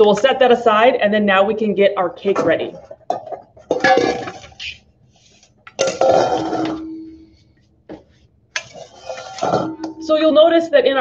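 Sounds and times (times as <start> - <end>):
steel bowls clanking on table: 3.1 - 4.7, 5.7 - 7.3, 8.6 - 10.1
bowl ringing: 5.8 - 7.5, 9.0 - 10.2.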